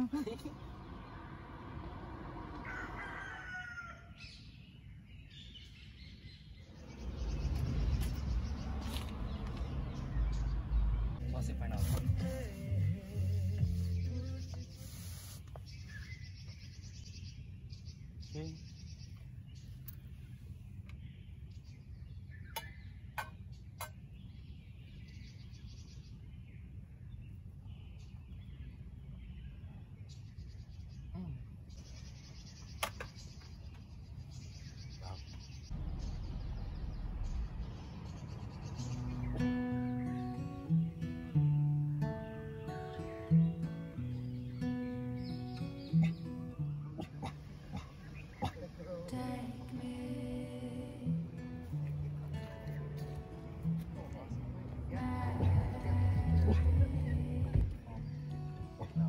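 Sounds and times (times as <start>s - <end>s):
low rumble: 0.0s - 3.2s, 6.6s - 14.5s, 35.6s - 39.7s, 49.4s - 58.9s
faint bird chirping: 0.0s - 59.0s
rooster crowing: 2.2s - 4.4s.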